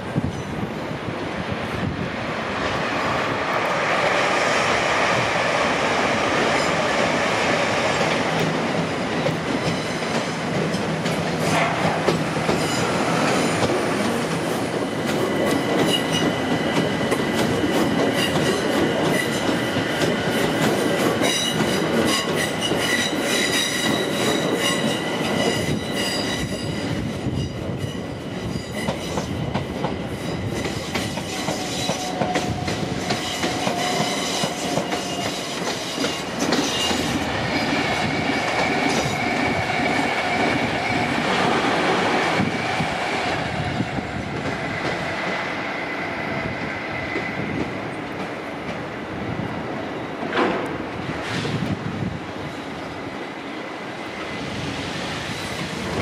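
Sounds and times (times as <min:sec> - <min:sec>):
train wheels clicking over track: 0:05.2 - 0:45.7, 0:50.1 - 0:51.8
train wheels squealing: 0:12.4 - 0:13.6, 0:15.1 - 0:19.8, 0:21.2 - 0:41.4, 0:44.5 - 0:47.8.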